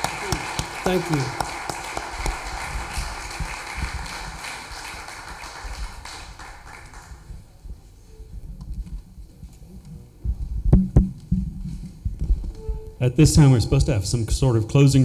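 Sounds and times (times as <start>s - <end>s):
applause: 0.0s - 7.5s
low thuds: 10.2s - 12.6s.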